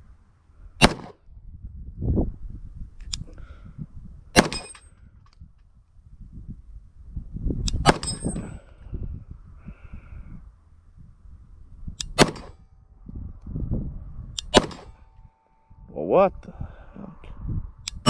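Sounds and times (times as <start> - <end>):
wind buffeting microphone: 0.0 - 18.0
pistol shots: 0.8 - 1.2, 4.4 - 4.8, 7.8 - 8.3, 12.0 - 12.6, 14.4 - 15.0.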